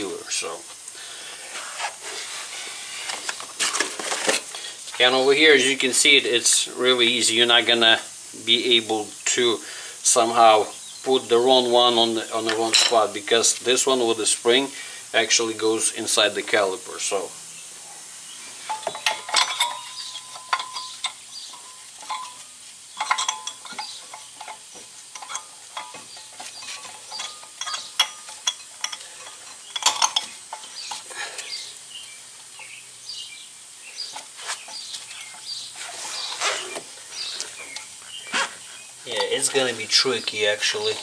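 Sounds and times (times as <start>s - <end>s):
metal clinks and scrapes: 18.6s - 31.6s.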